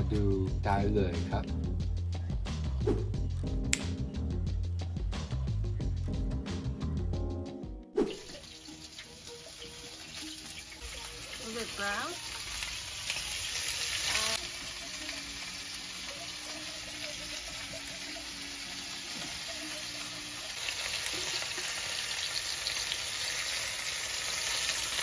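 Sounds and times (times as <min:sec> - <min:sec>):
beef sizzling in hot oil: 0:08.1 - 0:25.0.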